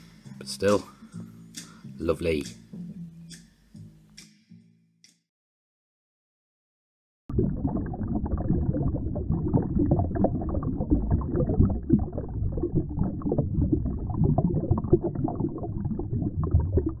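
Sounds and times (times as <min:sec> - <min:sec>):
underwater rushing river current: 0:07.3 - 0:17.0.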